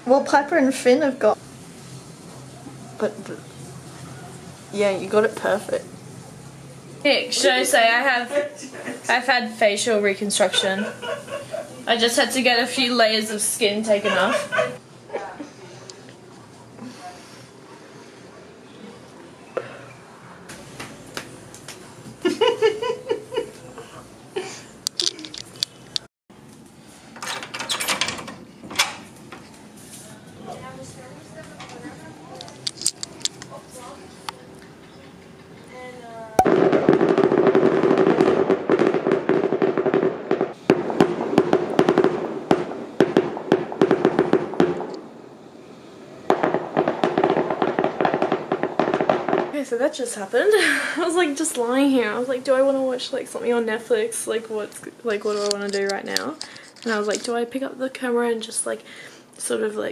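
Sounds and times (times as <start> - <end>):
person laughing: 10.6 - 11.8, 14.0 - 15.5, 22.2 - 25.3
fireworks bangs and crackling: 20.5 - 23.3, 36.4 - 50.2.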